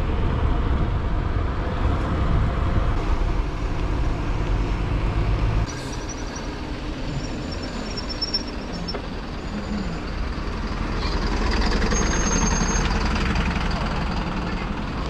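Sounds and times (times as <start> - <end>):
rumbling wind: 0.0 - 15.0.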